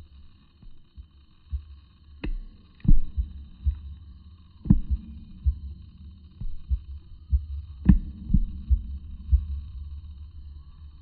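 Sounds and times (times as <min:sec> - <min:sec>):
faint high whine: 0:00.0 - 0:11.0.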